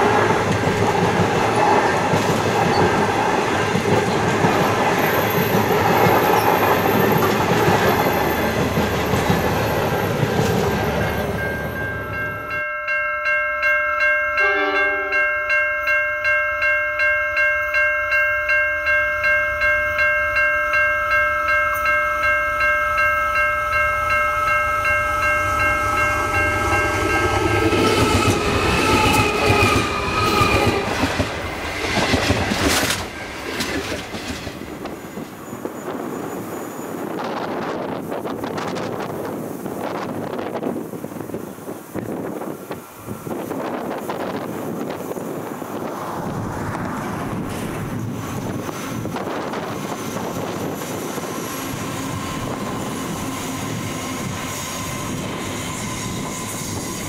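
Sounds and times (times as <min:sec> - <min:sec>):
train wheels on rails: 0:00.0 - 0:12.6, 0:17.4 - 0:57.0
pulsing high ringing tones: 0:10.9 - 0:32.1
locomotive wheels rumbling: 0:25.1 - 0:57.0.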